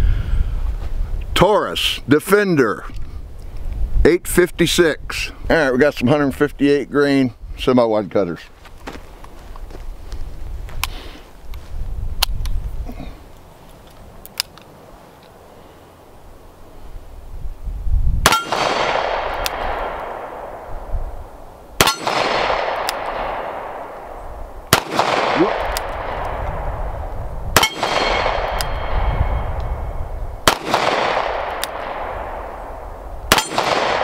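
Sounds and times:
revolver gunshots: 18.2s - 20.8s, 21.8s - 29.4s, 30.4s - 34.0s
bullets clanging on steel targets: 21.8s - 22.3s, 27.6s - 28.8s, 33.3s - 33.8s.

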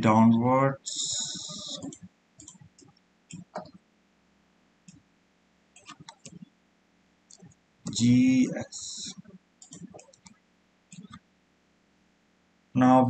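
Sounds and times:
computer mouse clicks: 1.0s - 3.8s, 5.8s - 6.5s, 9.0s - 11.2s
keyboard keys clicking: 1.0s - 3.8s, 5.8s - 6.4s, 9.0s - 10.3s, 10.9s - 11.2s.

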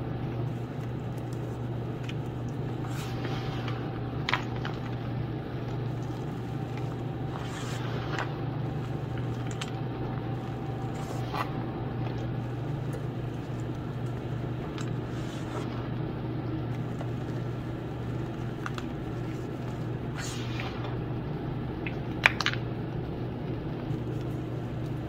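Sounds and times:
low hum: 0.0s - 25.0s.

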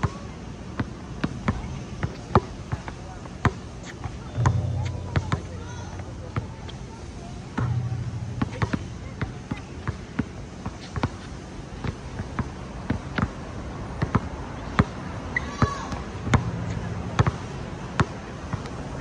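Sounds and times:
basketball bouncing on hard court: 4.4s - 6.5s, 7.6s - 10.3s, 15.6s - 18.6s.

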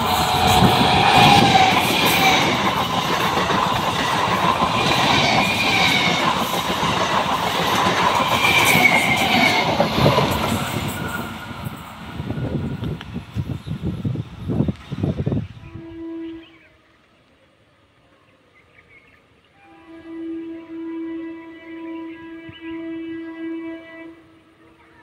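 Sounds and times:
electric train passing: 0.0s - 16.6s.

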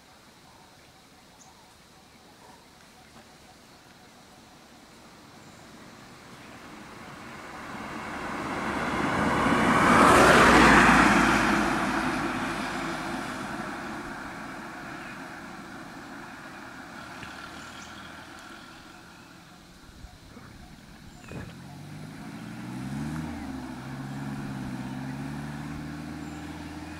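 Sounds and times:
vehicle passing by: 6.0s - 26.9s.

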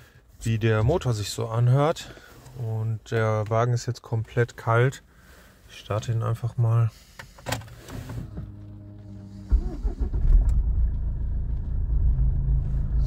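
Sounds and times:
diesel engine starting and idling: 8.0s - 13.0s.

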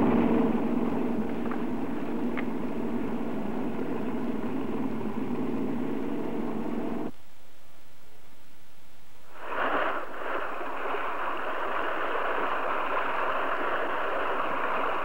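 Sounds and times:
water gushing from pipe: 9.4s - 15.0s.

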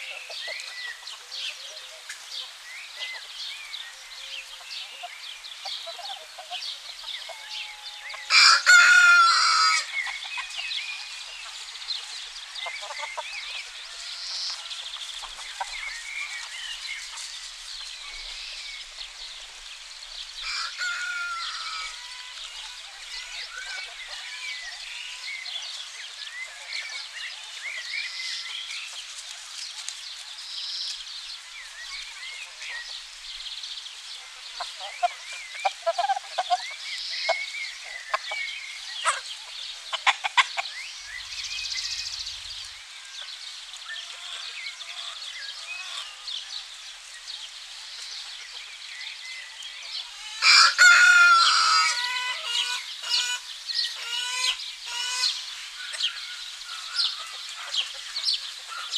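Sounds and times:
hens clucking: 0.0s - 2.3s, 4.4s - 18.5s, 34.2s - 42.4s, 50.4s - 56.0s
songbirds chirping: 0.0s - 58.9s
rooster crowing: 7.5s - 9.9s, 20.4s - 22.3s, 50.2s - 52.6s.

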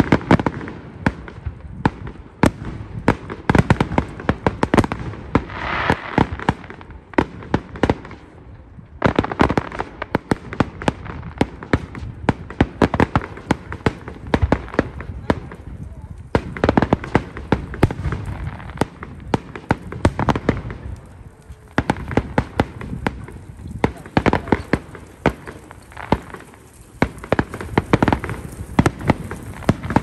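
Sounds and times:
fireworks bangs and crackles: 0.0s - 30.0s
firework hiss: 3.3s - 8.3s, 21.5s - 30.0s.

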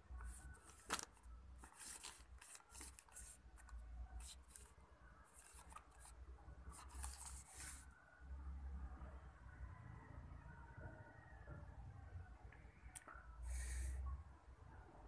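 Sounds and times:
plastic blister pack crinkling: 0.2s - 4.7s.

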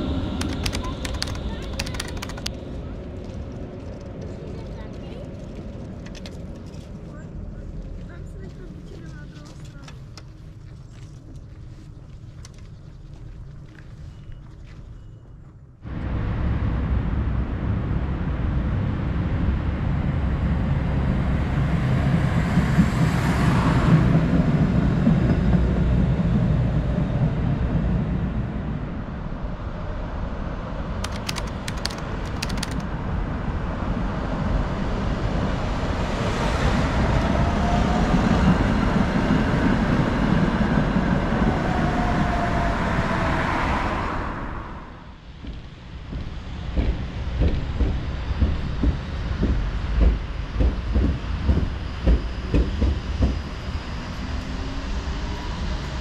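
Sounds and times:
tram passing with faint whine: 0.0s - 56.0s
cars passing: 29.5s - 46.9s.

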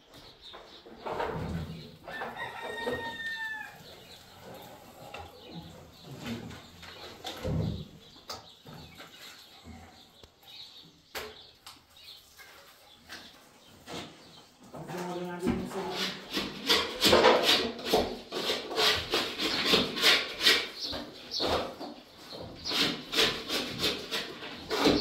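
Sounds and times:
rooster crowing: 2.1s - 3.9s.

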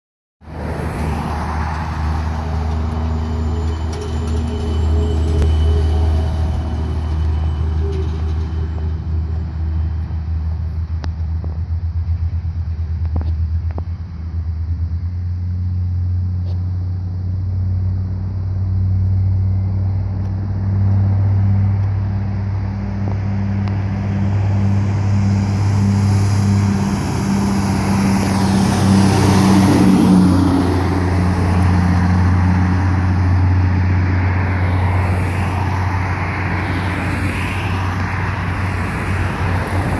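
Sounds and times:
diesel truck engine drone: 0.4s - 39.9s
traffic noise: 0.4s - 39.9s
truck passing close: 0.4s - 39.9s.

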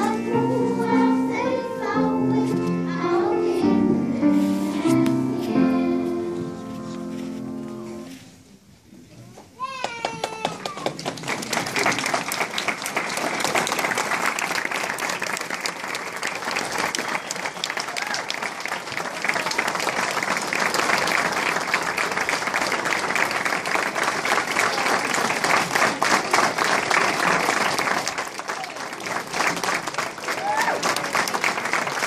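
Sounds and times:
audience applauding: 9.8s - 32.0s.

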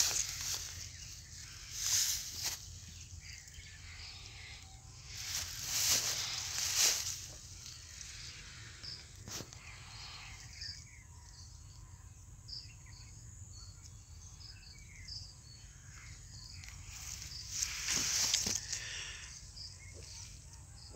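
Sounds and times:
rustle: 0.0s - 3.8s, 4.4s - 9.7s, 16.6s - 19.3s.

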